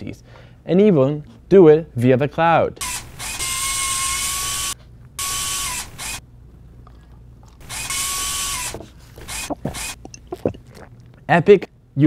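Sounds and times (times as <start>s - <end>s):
whirring robot motor whine: 2.9s - 6.2s, 7.6s - 10.6s.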